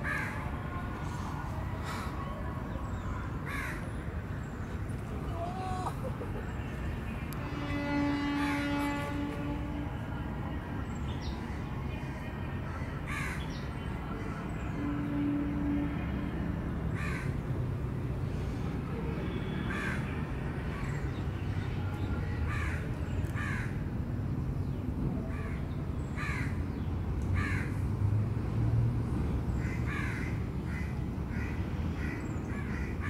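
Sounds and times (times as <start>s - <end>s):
crows cawing: 3.5s - 3.8s, 13.1s - 13.4s, 17.0s - 17.4s, 23.4s - 23.8s, 26.2s - 26.6s, 27.4s - 27.8s, 29.6s - 33.0s.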